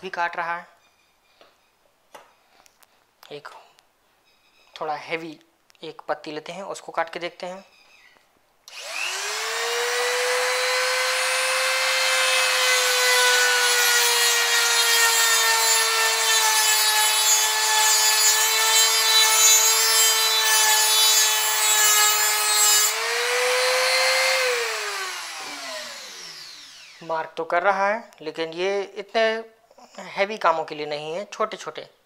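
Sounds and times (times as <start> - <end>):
die grinder motor whine: 8.7 - 16.4, 17.2 - 27.0.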